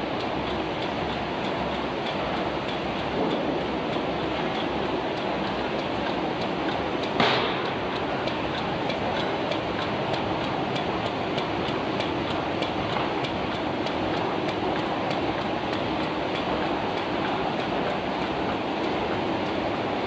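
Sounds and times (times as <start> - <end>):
rapid machine clicking: 0.0 - 20.0.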